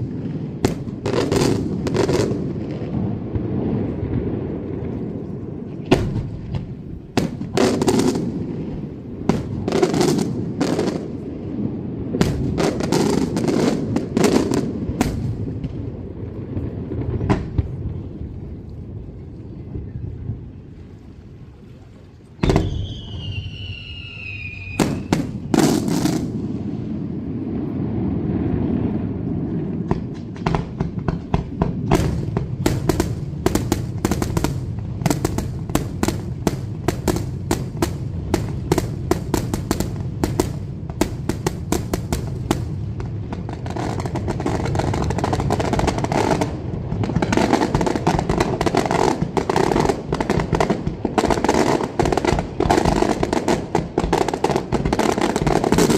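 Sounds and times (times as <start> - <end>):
firework bangs and cracks: 0.0 - 18.1, 22.4 - 55.9
descending firework whistle: 22.4 - 26.4.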